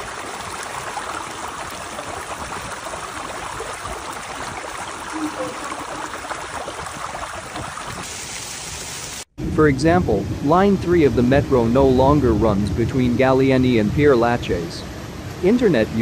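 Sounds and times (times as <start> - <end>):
floodwater gushing and bubbling: 0.0 - 9.2.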